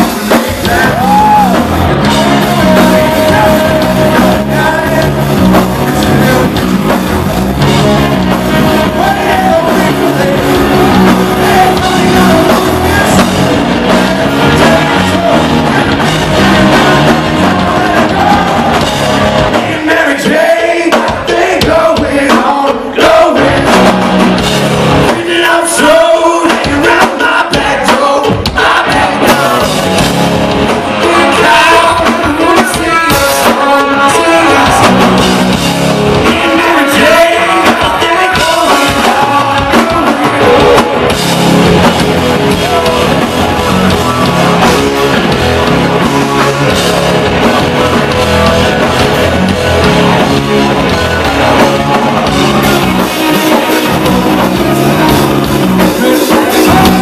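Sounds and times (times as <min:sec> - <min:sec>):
lead singer vocals: 0:00.0 - 0:07.2, 0:08.3 - 0:24.4, 0:25.0 - 0:30.1, 0:30.7 - 0:57.0
live rock band playing: 0:00.0 - 0:57.0.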